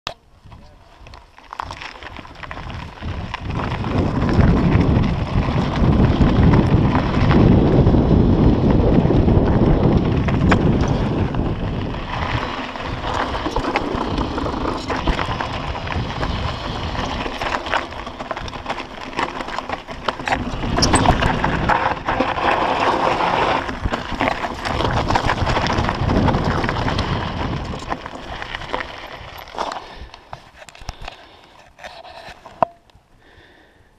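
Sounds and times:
bike tyres crunching over stones: 0:00.2 - 0:33.8
wind buffeting microphone: 0:00.4 - 0:30.1
clicks and knocks from rocks: 0:00.5 - 0:04.3
bike parts rattling: 0:09.4 - 0:32.8.

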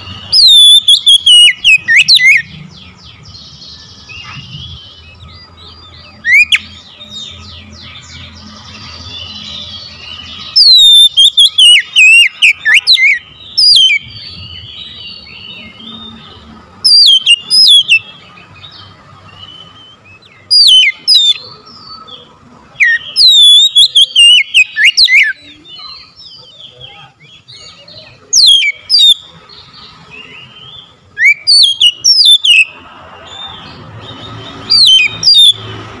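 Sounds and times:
bird singing whistled phrases: 0:00.0 - 0:02.5, 0:03.8 - 0:07.4, 0:09.0 - 0:16.2, 0:16.8 - 0:18.2, 0:19.3 - 0:21.9, 0:22.8 - 0:29.2, 0:30.2 - 0:32.7, 0:33.5 - 0:35.6
soft bird chirps: 0:00.0 - 0:35.9.

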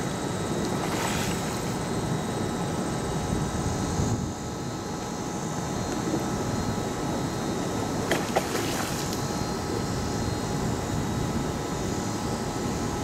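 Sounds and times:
water splash at landing net: 0:00.7 - 0:01.8, 0:08.0 - 0:09.2.

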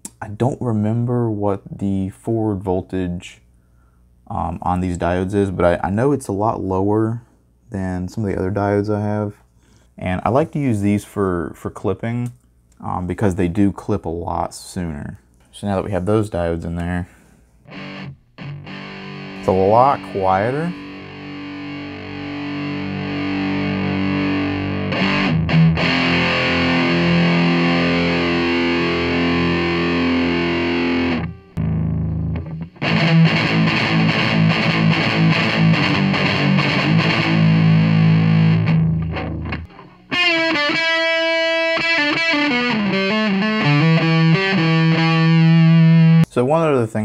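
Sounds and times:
distorted electric guitar: 0:17.7 - 0:46.3.

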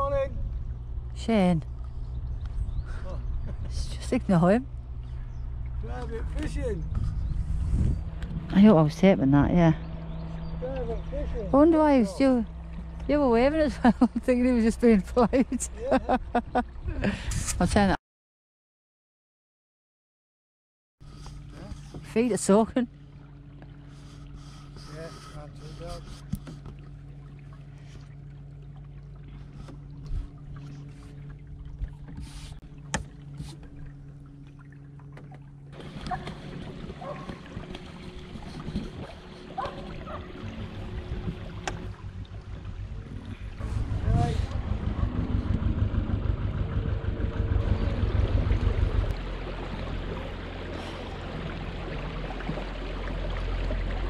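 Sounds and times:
wind buffeting flutter: 0:00.0 - 0:15.5, 0:29.9 - 0:32.7, 0:35.7 - 0:54.0
low rumble: 0:00.0 - 0:18.0, 0:25.6 - 0:54.0
steady low hum: 0:00.0 - 0:18.0, 0:21.0 - 0:54.0
wind noise: 0:06.2 - 0:08.7, 0:36.2 - 0:49.2
rush of water: 0:25.2 - 0:54.0.

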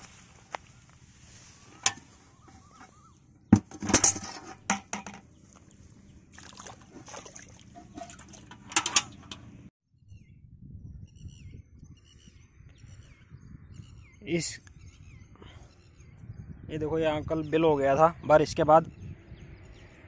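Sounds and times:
metal bucket clanking: 0:01.7 - 0:05.3, 0:06.4 - 0:09.6
bucket handle clinking: 0:01.8 - 0:03.0, 0:03.6 - 0:05.3, 0:06.5 - 0:09.5
bucket filling with water: 0:06.4 - 0:08.6.

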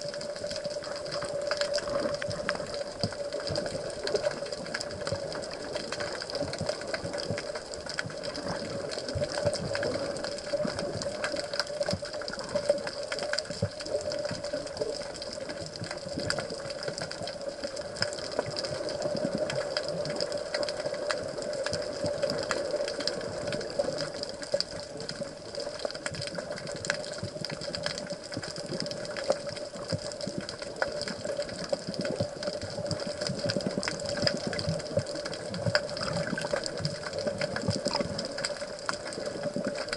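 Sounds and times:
light crackling: 0:00.0 - 0:39.9
muffled water wash: 0:00.0 - 0:39.9
underwater hum: 0:00.0 - 0:39.9.

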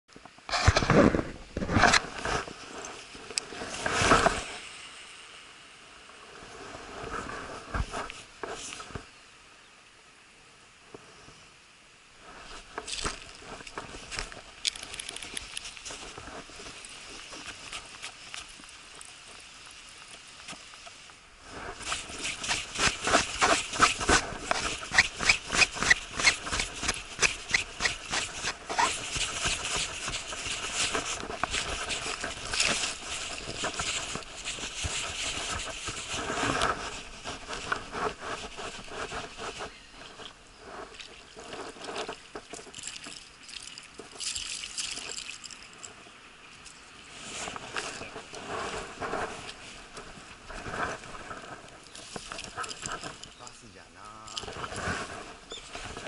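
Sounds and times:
rustling: 0:12.2 - 0:56.0.

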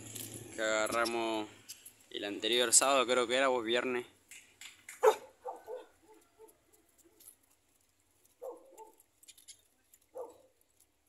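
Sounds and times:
dog barking and yipping: 0:05.0 - 0:07.3, 0:08.4 - 0:09.1, 0:10.1 - 0:10.6.

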